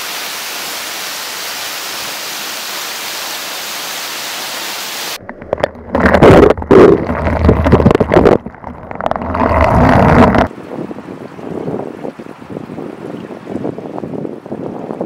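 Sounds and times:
waterfall rushing hiss: 0.0s - 5.2s
water splashing on camera: 4.7s - 10.6s.

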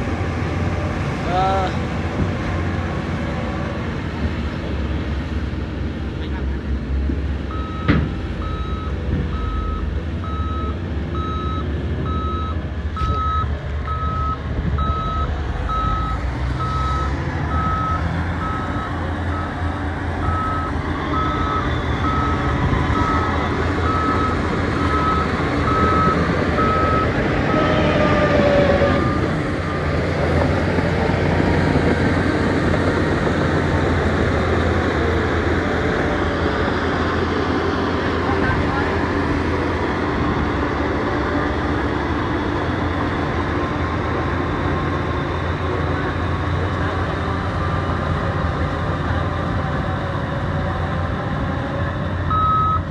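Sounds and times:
diesel engines droning: 0.0s - 52.9s
reversing alarm beeping: 7.5s - 19.6s, 20.2s - 27.6s, 52.3s - 52.9s.

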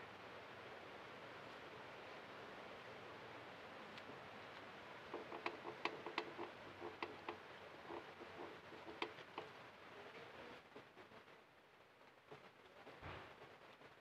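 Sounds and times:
brake drum metallic clicks: 5.2s - 7.4s.

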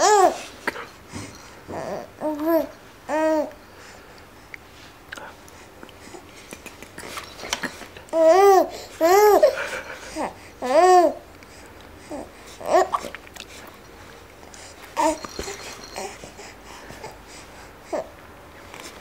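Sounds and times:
baby cooing and laughing: 0.0s - 0.8s, 6.4s - 11.2s, 12.1s - 13.2s, 15.0s - 16.6s.

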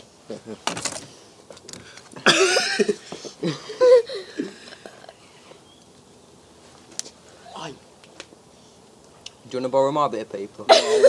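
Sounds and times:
harsh cough-like vocal burst: 2.2s - 3.6s, 10.7s - 11.0s.

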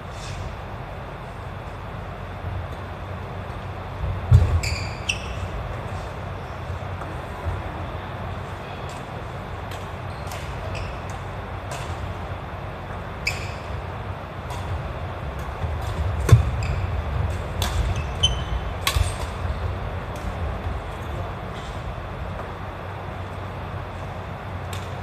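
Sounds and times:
steady low hum: 0.0s - 25.0s
shoe squeaks on wooden floor: 4.5s - 5.6s, 16.4s - 17.0s, 17.9s - 18.7s
rackets hitting shuttlecock: 8.8s - 20.7s, 24.6s - 25.0s.

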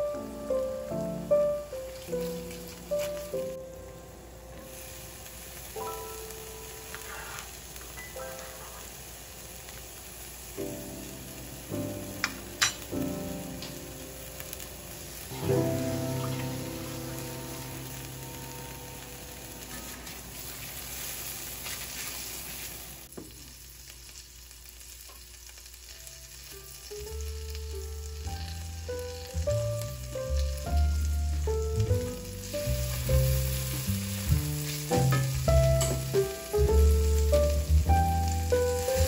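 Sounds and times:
background music held notes: 0.0s - 7.1s, 10.5s - 21.6s, 26.5s - 39.0s
onions sizzling in a pan: 0.0s - 39.0s
spatula stirring: 19.7s - 22.8s.

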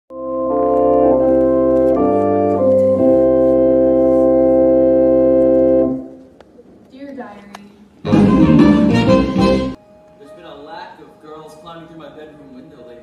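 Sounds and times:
organ playing slow chords: 0.1s - 6.2s, 8.1s - 10.6s.

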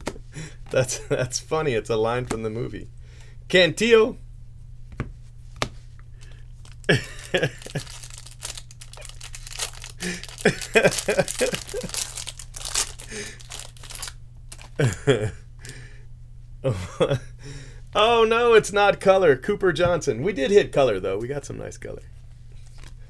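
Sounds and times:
cards rustling: 4.9s - 15.0s
foil wrapper tearing and crinkling: 6.6s - 14.9s.

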